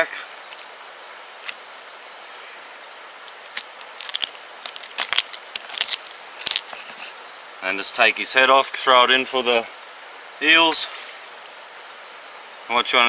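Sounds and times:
steady high hiss: 0.0s - 13.0s
fish bones crunching: 3.3s - 7.0s.

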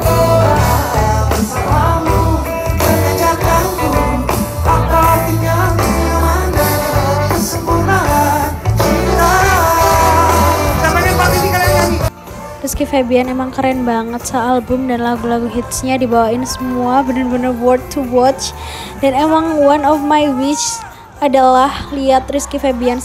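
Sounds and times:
man singing lead vocal: 0.0s - 12.1s
live band playing pop song: 0.0s - 21.2s.

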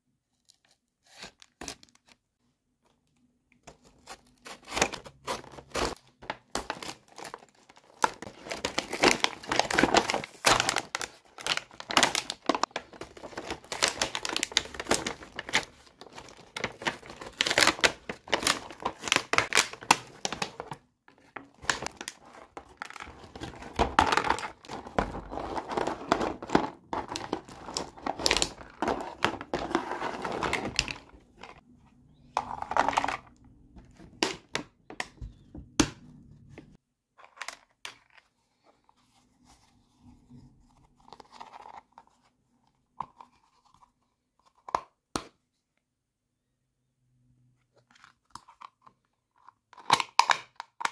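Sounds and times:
plastic packaging crinkling and tearing: 4.0s - 31.6s.

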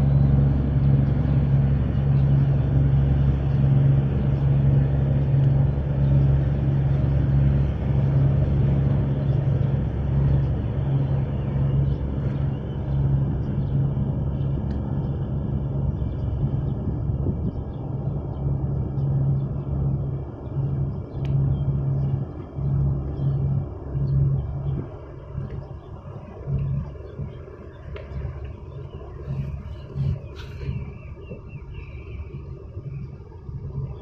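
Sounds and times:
ship engine drone: 0.0s - 34.0s.

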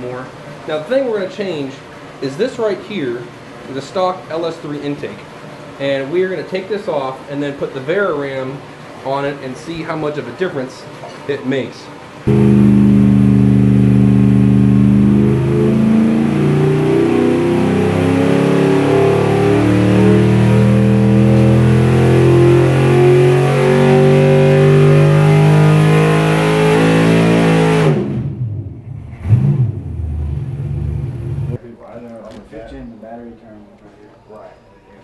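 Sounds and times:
engine running under load: 12.3s - 31.6s.

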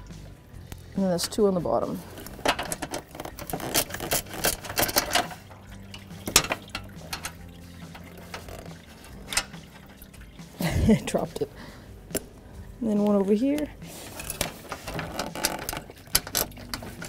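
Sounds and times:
metal tools clinking: 2.1s - 10.0s, 14.0s - 17.0s
ratchet clicking: 2.2s - 10.0s.

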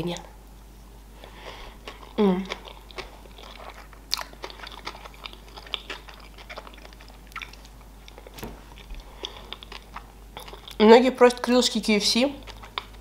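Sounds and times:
person chewing food: 1.2s - 10.8s, 12.4s - 13.0s.

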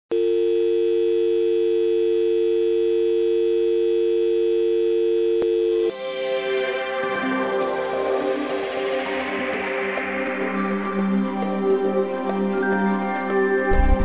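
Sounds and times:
two-note electronic test tone: 0.2s - 5.9s
intro music: 5.7s - 14.0s.

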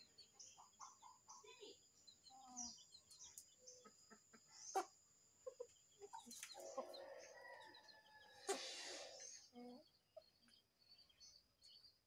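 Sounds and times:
chickens clucking: 0.0s - 11.8s.

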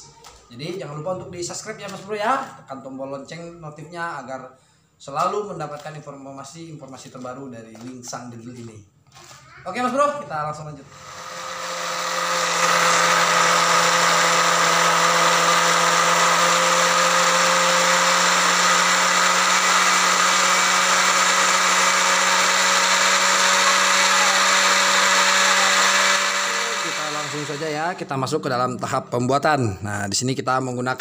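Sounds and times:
blender grinding pellets: 10.8s - 28.1s.

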